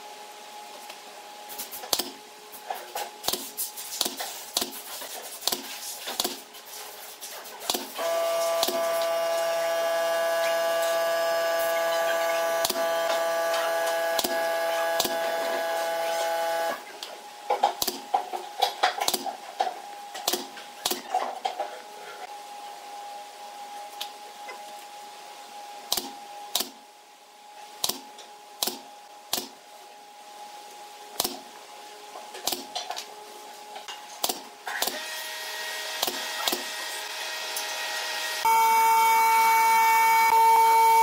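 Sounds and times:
power tool motor running: 8.0s - 16.8s, 34.9s - 41.0s.

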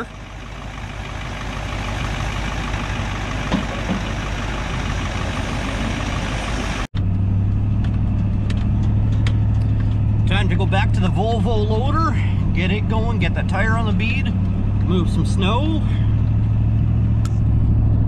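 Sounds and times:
diesel engine running: 0.0s - 18.0s
engine drone inside vehicle cab: 0.0s - 18.0s.

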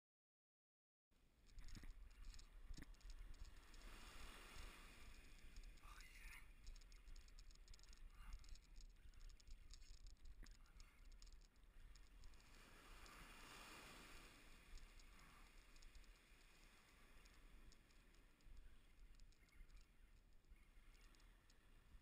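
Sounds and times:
small clicks and scratches: 1.4s - 22.0s.

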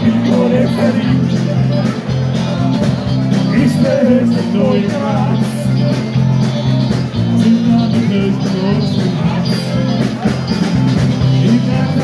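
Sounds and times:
person singing: 0.0s - 2.0s, 3.3s - 6.0s, 7.2s - 10.1s, 11.2s - 12.0s
live pop-rock band: 0.0s - 12.0s
steady drum beat: 0.0s - 12.0s.

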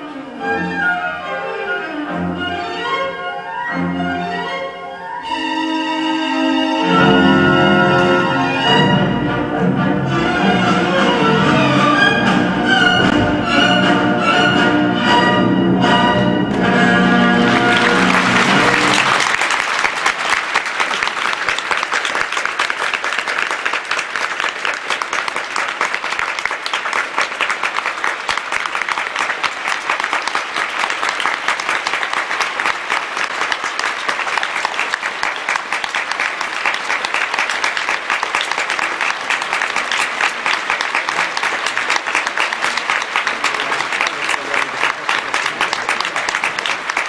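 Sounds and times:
audience applauding: 16.5s - 47.0s.

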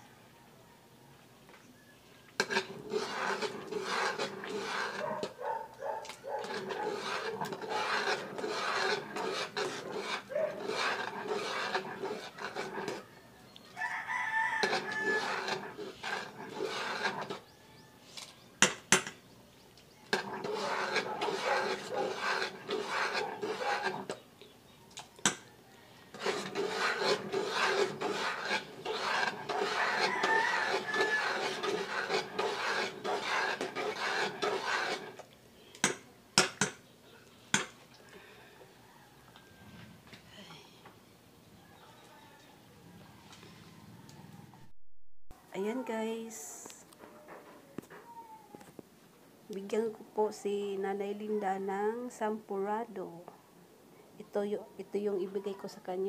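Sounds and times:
ladle scraping metal pot: 2.4s - 5.4s, 6.0s - 13.1s, 14.2s - 17.6s, 20.1s - 24.2s, 25.2s - 36.8s.

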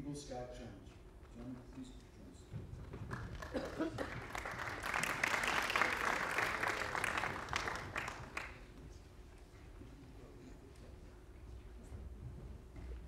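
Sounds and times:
audience applauding: 2.9s - 8.7s.

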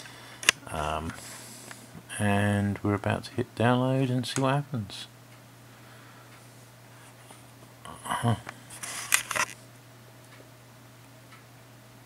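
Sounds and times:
steady low hum: 0.0s - 12.0s
camera handling rustle: 8.8s - 9.6s.

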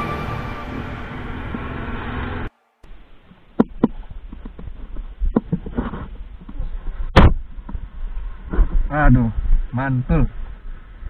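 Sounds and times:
low rumble: 0.0s - 5.3s.

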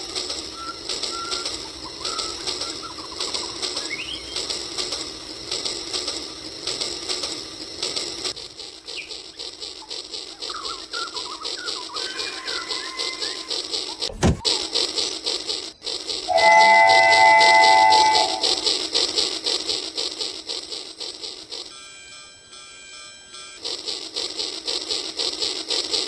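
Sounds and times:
toy train clicking rattle: 0.0s - 21.9s, 23.5s - 26.0s.

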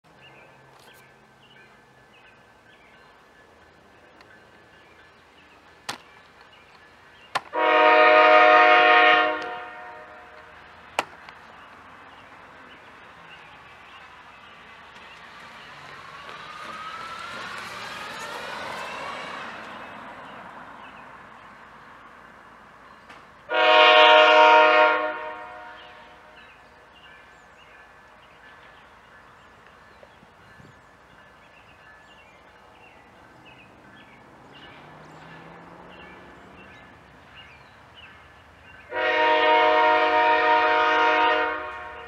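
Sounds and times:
locomotive air horn blasts: 7.5s - 10.6s, 23.5s - 26.4s, 38.9s - 42.0s.

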